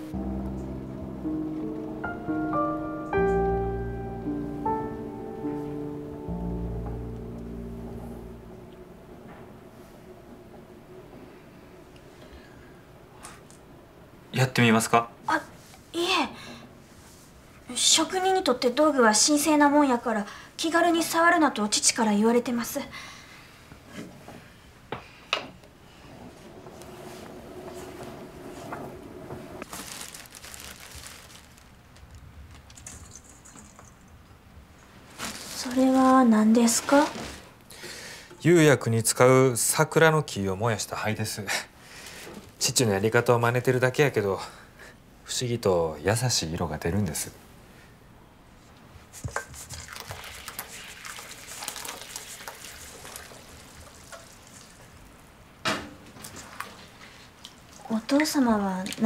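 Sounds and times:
ash being sifted: 0:29.6 - 0:31.8
plastic bag crinkling: 0:29.6 - 0:33.8, 0:35.0 - 0:37.6
bowl scooping ash: 0:49.5 - 0:54.9.

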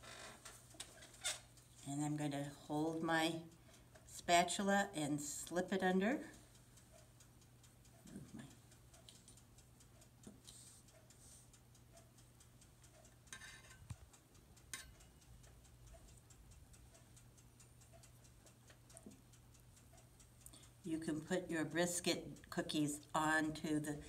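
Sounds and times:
faint clock ticking: 0:00.0 - 0:24.0
spatula scraping metal baking sheet: 0:13.3 - 0:13.8.

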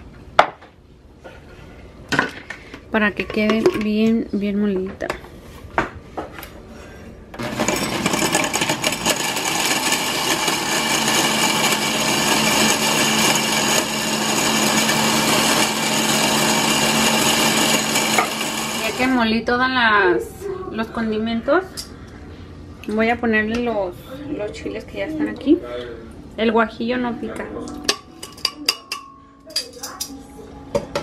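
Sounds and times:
electric spice grinder whirring: 0:07.4 - 0:19.2.

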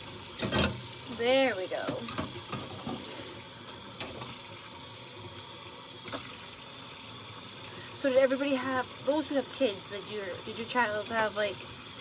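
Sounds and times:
faucet running into sink: 0:00.0 - 0:12.0.

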